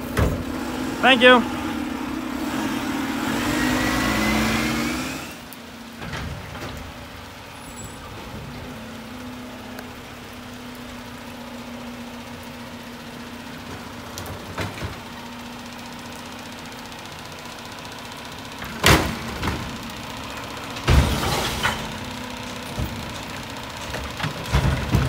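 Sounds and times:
truck engine pulling away whine: 0.0s - 25.0s
truck idling: 0.0s - 25.0s.

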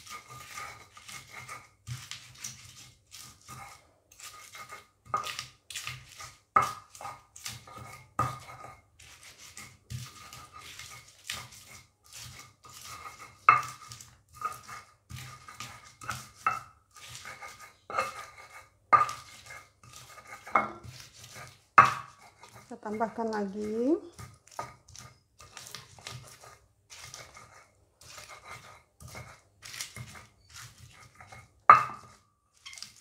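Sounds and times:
stone pestle pounding in mortar: 0.0s - 32.2s.

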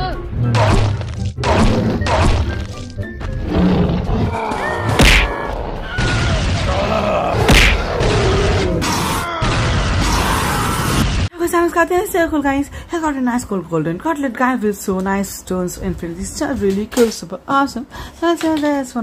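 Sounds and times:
action music: 0.0s - 8.1s
loud impact hits: 4.9s - 5.4s, 7.4s - 8.1s.

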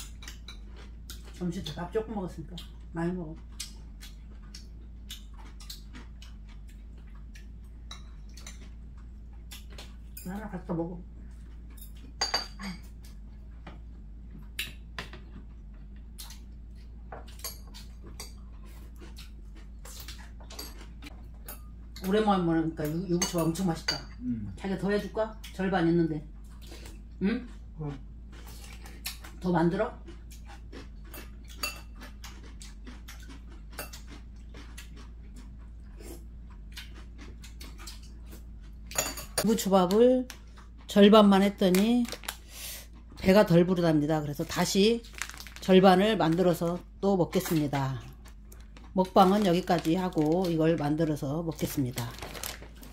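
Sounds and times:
chewing: 0.0s - 10.2s, 12.8s - 22.1s, 26.3s - 39.0s, 39.9s - 41.0s, 45.0s - 52.9s
steady low hum: 0.0s - 52.9s.

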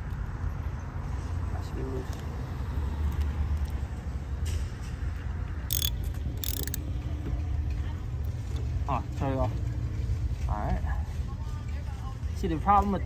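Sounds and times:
ratchet wrench clicking: 5.7s - 6.8s.

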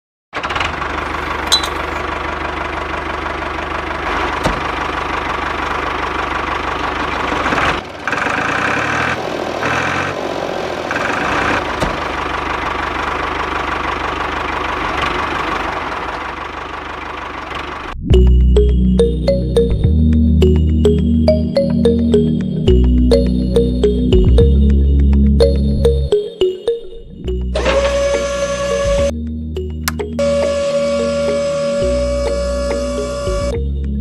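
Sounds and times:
toy tractor engine running: 0.4s - 10.2s, 10.9s - 17.9s, 27.5s - 29.0s.

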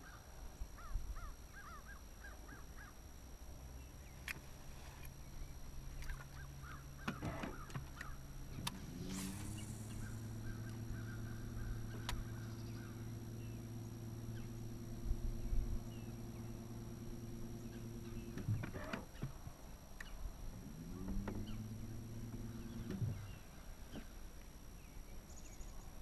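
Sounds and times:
electric trolling motor humming: 0.0s - 26.0s
sharp clicks: 11.8s - 12.3s.

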